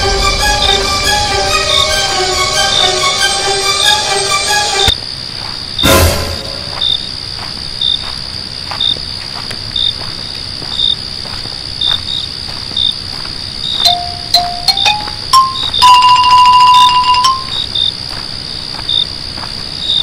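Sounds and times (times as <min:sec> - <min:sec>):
crickets chirping: 0:00.0 - 0:20.0
steady high ringing: 0:05.8 - 0:07.0, 0:13.8 - 0:17.6.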